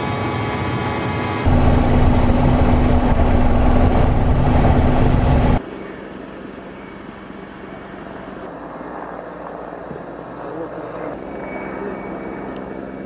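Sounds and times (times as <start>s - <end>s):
distant helicopter in flight: 0.0s - 13.0s
helicopter rotor and engine noise: 0.0s - 13.0s.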